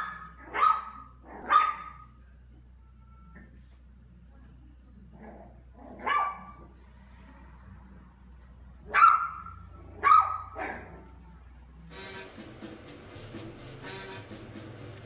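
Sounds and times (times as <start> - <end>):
puppy barking high-pitched: 0.0 - 2.1, 5.9 - 6.6, 8.9 - 11.1.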